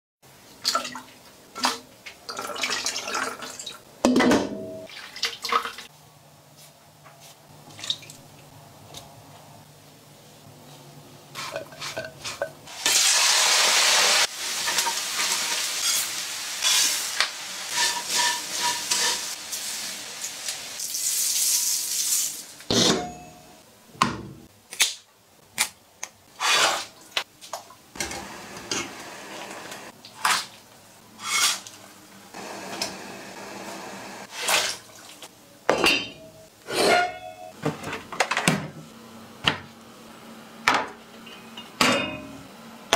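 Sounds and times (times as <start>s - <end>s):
pots and utensils clinking: 11.4s - 13.0s, 14.6s - 19.4s, 35.7s - 38.5s, 40.8s - 42.5s
food stirred in a pan: 13.8s - 22.2s.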